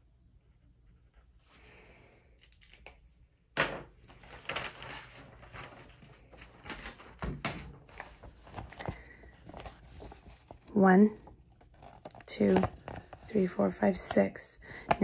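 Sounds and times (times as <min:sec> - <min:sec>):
paper rustling: 0:04.0 - 0:13.7.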